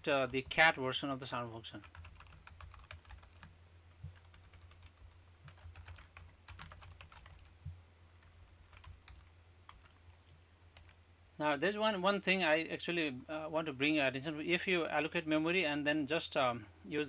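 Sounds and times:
faint keyboard typing: 1.8s - 11.0s.

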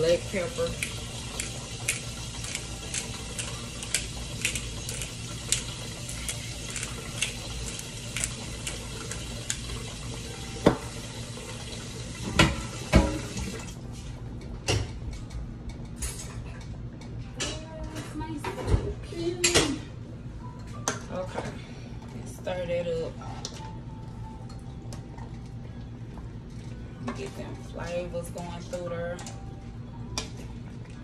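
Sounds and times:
water boiling and bubbling: 0.0s - 14.0s
pots and utensils clunking: 12.2s - 13.6s.

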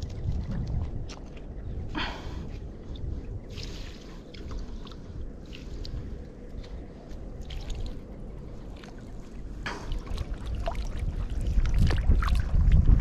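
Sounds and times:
wind on microphone: 0.0s - 8.6s, 9.9s - 13.0s
stream water splashing: 3.5s - 13.0s.

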